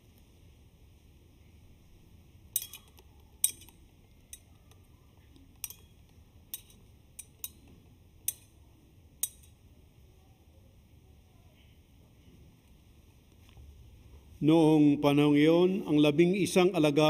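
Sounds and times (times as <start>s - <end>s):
censer chains clinking: 2.6s - 4.5s, 5.6s - 7.7s.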